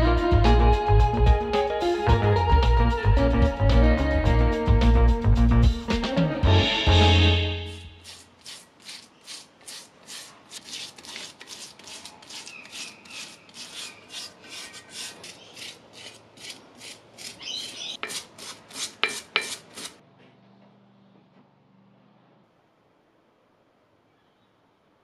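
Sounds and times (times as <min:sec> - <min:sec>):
brush scrubbing wet metal: 0:08.0 - 0:20.0.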